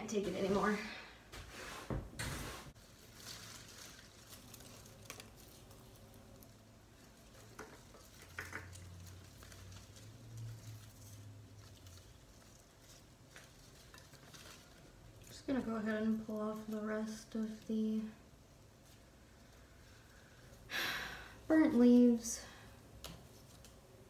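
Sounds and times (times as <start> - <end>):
leaves and roots rustling: 2.7 - 20.7.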